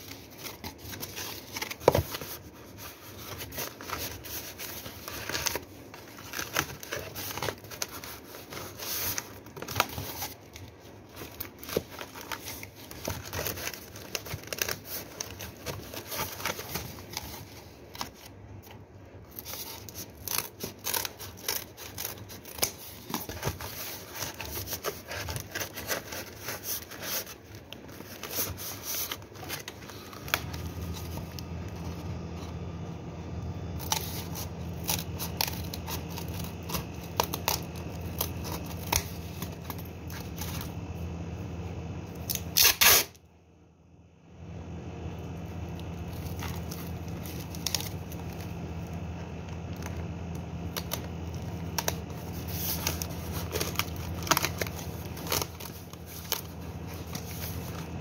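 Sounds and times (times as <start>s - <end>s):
steady low hum: 0.0s - 58.0s
plastic bottles crinkling: 45.8s - 58.0s.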